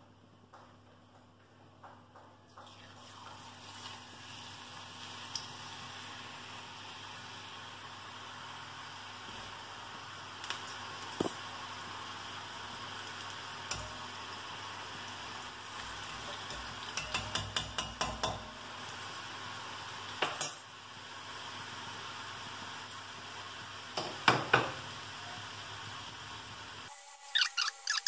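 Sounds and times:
dough frying in oil: 0:02.2 - 0:27.9
utensil tapping pan: 0:16.3 - 0:18.5.

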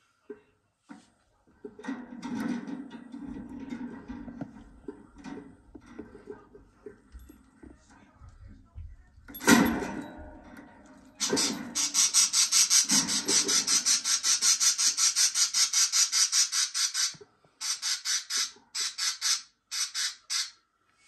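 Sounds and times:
budgerigar rasping pulses: 0:11.2 - 0:20.6.

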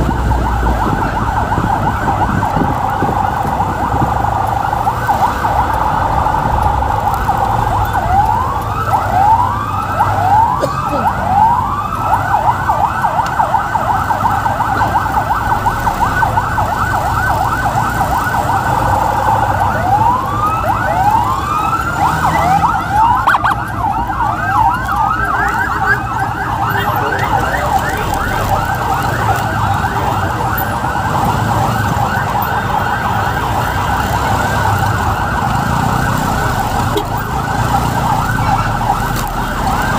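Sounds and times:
emergency sirens wailing: 0:00.0 - 0:39.9
low traffic rumble: 0:00.0 - 0:39.9.

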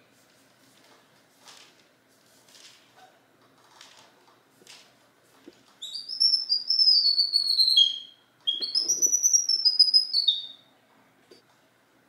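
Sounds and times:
high-pitched whistling: 0:06.0 - 0:10.6.

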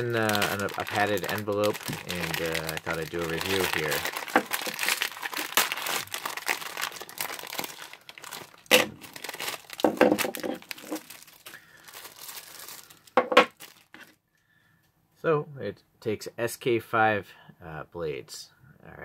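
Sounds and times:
plastic bag crinkling and tearing: 0:00.0 - 0:14.2.

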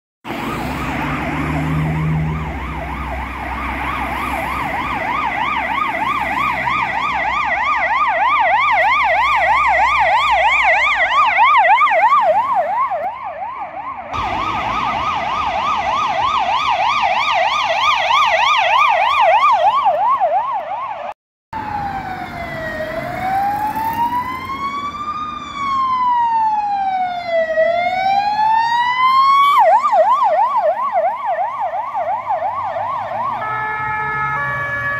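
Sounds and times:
traffic rumble: 0:00.3 - 0:20.9, 0:21.6 - 0:34.9
siren yelping and wailing: 0:00.3 - 0:34.9.

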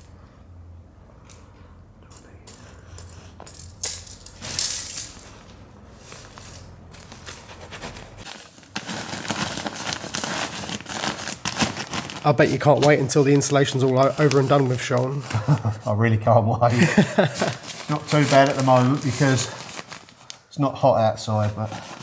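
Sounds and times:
steady low hum: 0:00.0 - 0:08.4
plastic wrapping crinkling: 0:05.1 - 0:15.9, 0:17.2 - 0:20.5.

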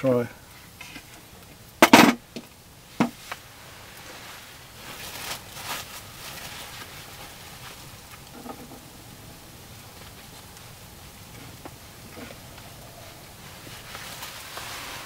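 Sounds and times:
plastic bag crinkling: 0:04.1 - 0:08.8.

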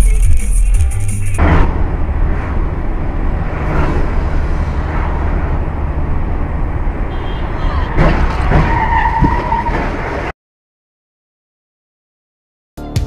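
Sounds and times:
car road and engine rumble: 0:00.0 - 0:10.3.

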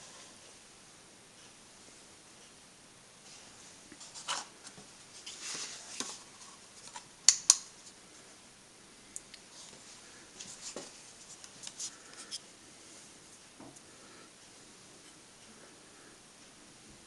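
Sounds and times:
light rustling and scraping: 0:03.3 - 0:07.0, 0:09.5 - 0:13.5.

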